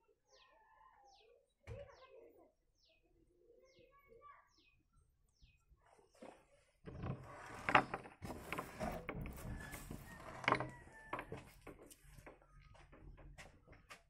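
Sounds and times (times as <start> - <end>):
metal door scraping and rattling: 6.9 - 12.2.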